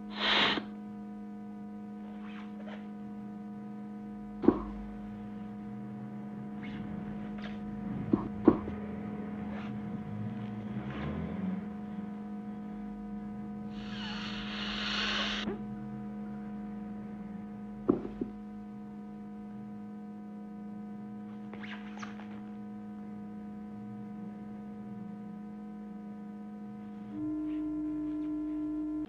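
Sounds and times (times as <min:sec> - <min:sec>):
air hissing from cushion: 0:00.0 - 0:00.7, 0:13.7 - 0:15.5
low electrical hum: 0:00.0 - 0:29.0
sharp knock: 0:04.4 - 0:04.8.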